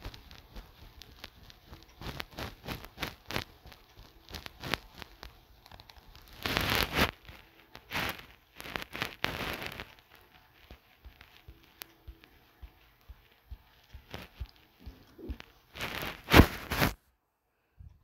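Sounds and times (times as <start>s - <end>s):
fingers tapping touchscreen: 8.7s - 15.6s.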